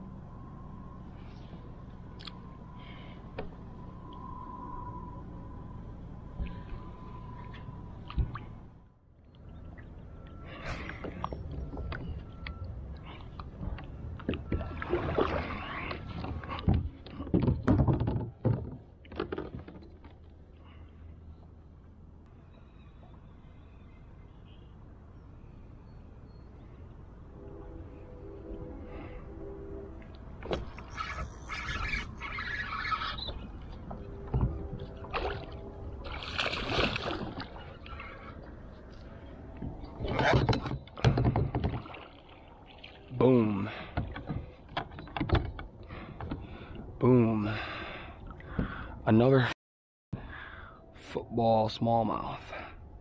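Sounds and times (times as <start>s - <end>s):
water sloshing around kayak: 13.0s - 20.1s, 30.4s - 46.8s
fishing gear knocking and rattling: 16.6s - 20.2s.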